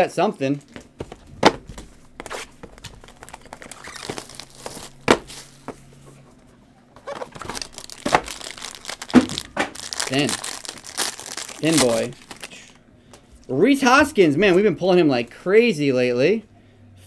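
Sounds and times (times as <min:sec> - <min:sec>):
foil wrapper crinkling and tearing: 0:02.2 - 0:05.5, 0:07.0 - 0:12.8.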